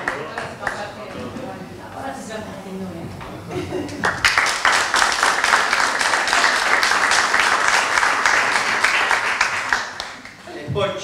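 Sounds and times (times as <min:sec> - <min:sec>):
audience applauding: 0:00.0 - 0:00.9, 0:04.0 - 0:10.5.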